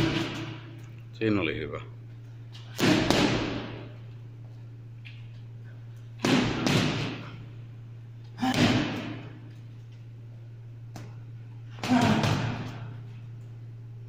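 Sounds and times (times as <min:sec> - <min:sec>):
steady low hum: 0:00.0 - 0:14.0
punches thudding on heavy bag: 0:02.7 - 0:03.9, 0:06.2 - 0:07.4, 0:08.4 - 0:09.4, 0:11.8 - 0:12.9.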